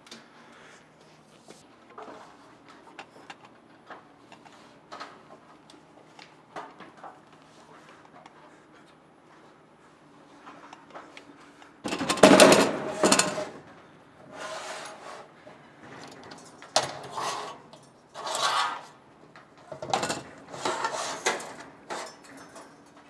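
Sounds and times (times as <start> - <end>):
metal knocking and clattering: 11.9 - 13.5.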